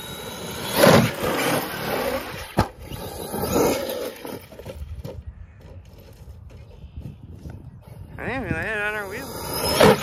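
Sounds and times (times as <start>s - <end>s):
rc truck motor revving: 0.0s - 5.0s, 9.0s - 10.0s.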